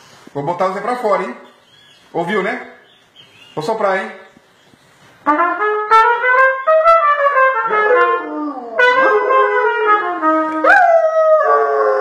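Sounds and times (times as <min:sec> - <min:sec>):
trumpet playing held notes: 0:05.2 - 0:11.0
dog howling: 0:07.6 - 0:12.0.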